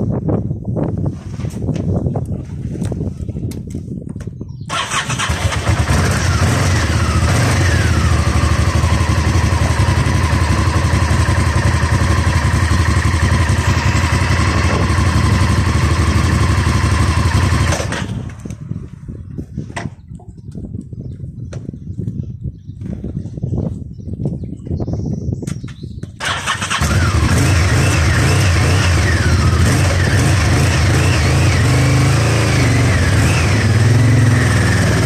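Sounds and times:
motorcycle engine revving: 0:04.7 - 0:18.5, 0:26.2 - 0:35.0.

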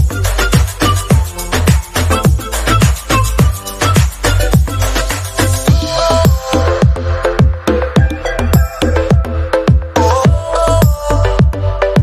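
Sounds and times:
electronic dance music: 0:00.0 - 0:12.0
steady kick drum: 0:00.0 - 0:12.0.

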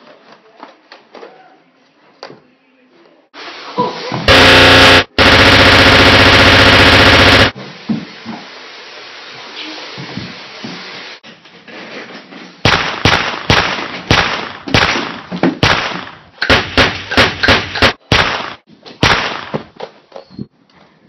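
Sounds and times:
gunshots: 0:04.3 - 0:07.6, 0:12.6 - 0:19.7.

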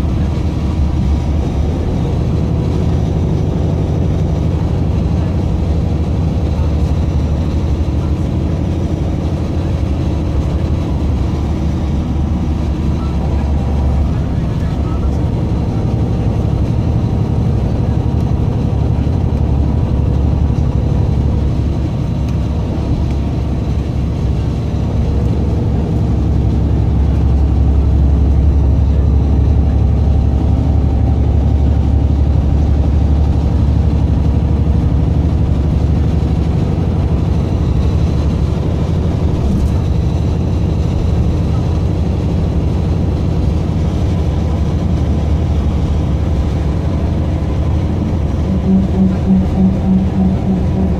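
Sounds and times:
bus engine and tyres rumbling: 0:00.0 - 0:50.9.

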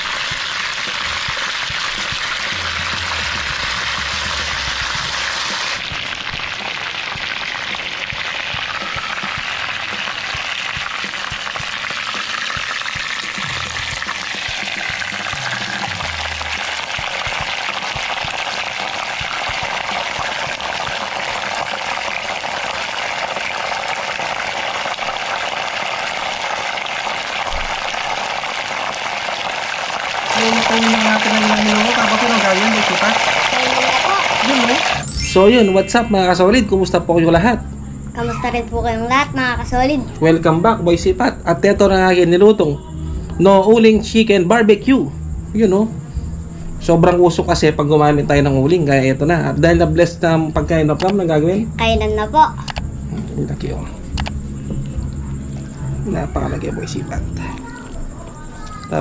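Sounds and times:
chicken sizzling in oil: 0:00.0 - 0:36.4.

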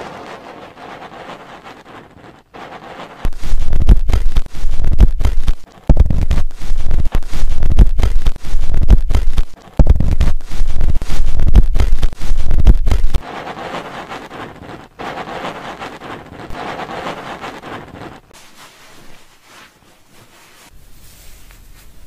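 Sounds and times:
cotton swab scratching in ear: 0:00.0 - 0:20.8.

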